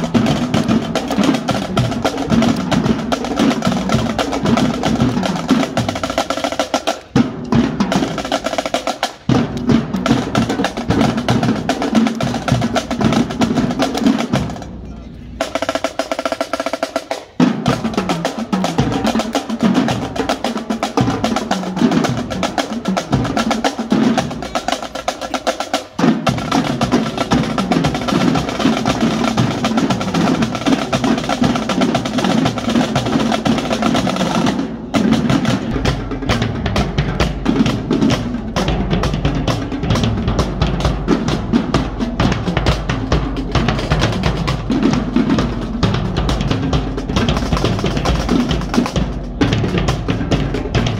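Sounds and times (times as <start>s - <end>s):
marching drumline playing: 0.0s - 50.9s
heavy bass drums: 17.4s - 50.9s.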